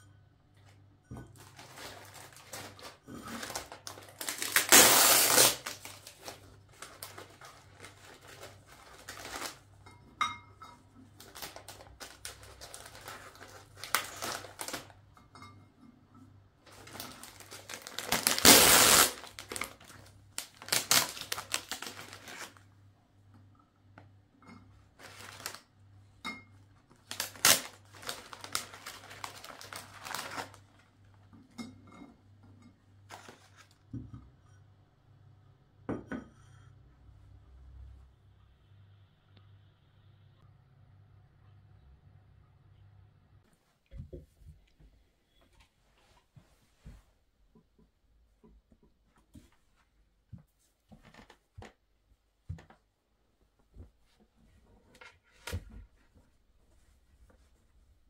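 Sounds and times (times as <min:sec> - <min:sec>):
packaging rustling and tearing: 0:01.4 - 0:09.6, 0:11.2 - 0:14.9, 0:16.7 - 0:22.6, 0:25.0 - 0:25.6, 0:27.0 - 0:30.7.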